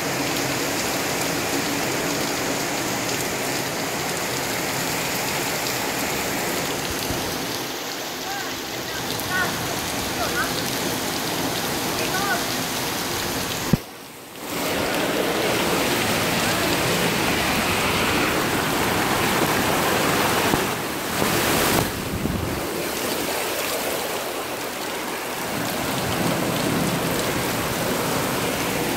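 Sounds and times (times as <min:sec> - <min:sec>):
floodwater rushing through street: 0:00.0 - 0:28.9
rain: 0:00.0 - 0:28.9.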